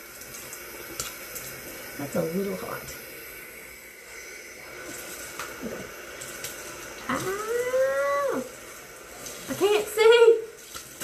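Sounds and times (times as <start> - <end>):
faucet running into sink: 0.0 - 11.0
water splashing on face: 4.7 - 11.0.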